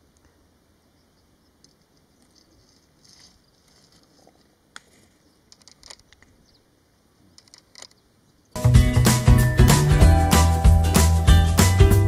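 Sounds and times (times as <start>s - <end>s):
faint outdoor ambience: 0.0s - 12.0s
small clicks and ticks: 5.5s - 6.3s, 7.4s - 8.0s.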